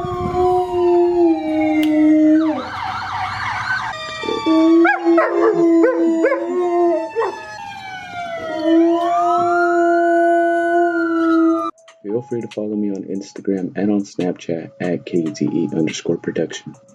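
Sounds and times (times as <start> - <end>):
dog howling: 0.0 - 2.7, 4.2 - 7.6, 8.2 - 11.7
dogs wavering howls: 0.0 - 3.0, 4.2 - 11.7
dogs yelping: 4.2 - 7.6.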